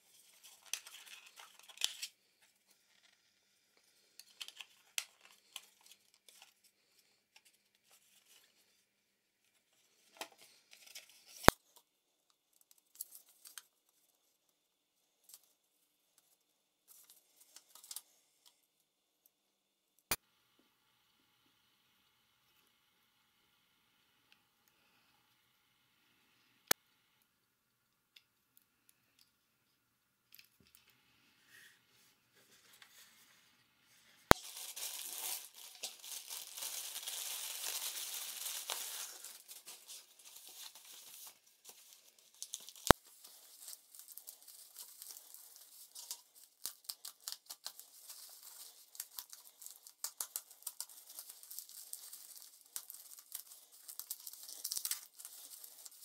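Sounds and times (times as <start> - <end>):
bubble wrap crinkling: 0.0 - 3.2, 4.0 - 8.7, 12.5 - 14.1, 34.3 - 56.0
packaging tearing: 0.6 - 2.1, 34.3 - 56.0.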